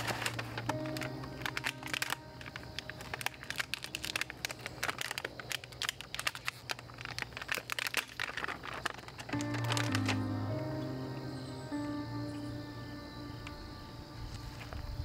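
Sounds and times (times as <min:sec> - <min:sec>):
plastic packaging crinkling: 0:00.0 - 0:10.8.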